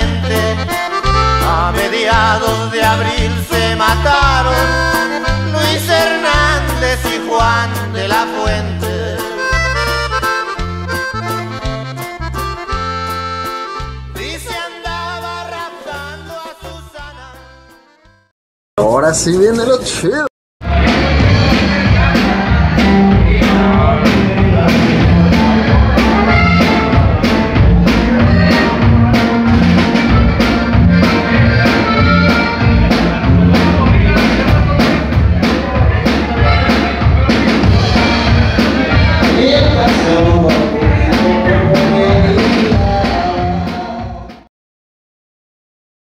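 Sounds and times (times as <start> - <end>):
man singing: 0.0 - 11.7, 13.9 - 17.8, 20.6 - 29.4, 30.7 - 44.5
drum kit beat: 0.0 - 17.9, 20.6 - 44.5
guitar: 0.0 - 18.2, 20.6 - 44.4
accordion: 0.0 - 18.3, 20.7 - 44.4.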